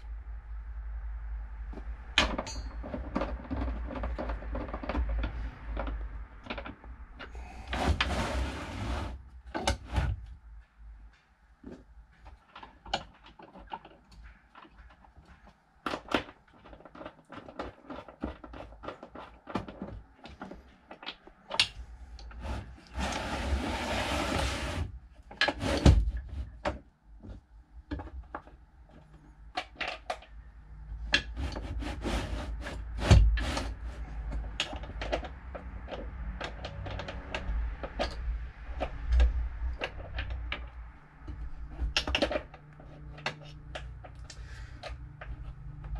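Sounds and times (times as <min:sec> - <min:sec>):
clicks and thumps: 0:01.7 - 0:08.3
clicks and knocks: 0:01.8 - 0:08.3.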